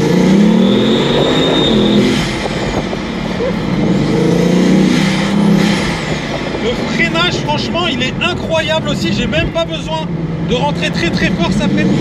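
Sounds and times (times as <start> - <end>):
thin high turbo whine: 0.0 - 8.4
car engine accelerating hard: 0.0 - 12.0.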